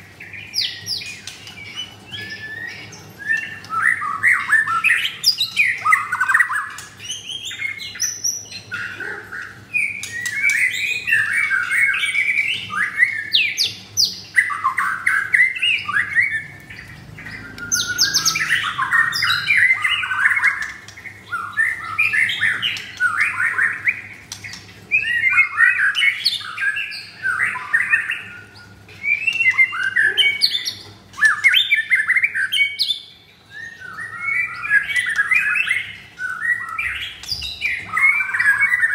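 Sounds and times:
songbird whistling and chattering: 0.4s - 38.9s.

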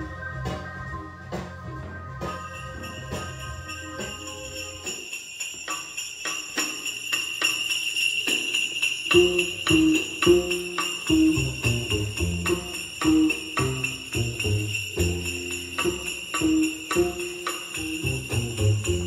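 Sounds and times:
bass line: 0.0s - 4.9s
upbeat music with beat: 0.0s - 6.5s
sleigh bells jingling: 0.0s - 19.0s.

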